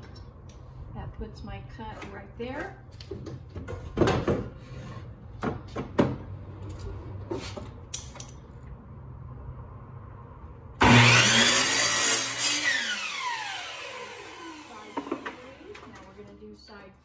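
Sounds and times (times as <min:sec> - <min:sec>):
miter saw motor cutting: 0:10.8 - 0:15.8.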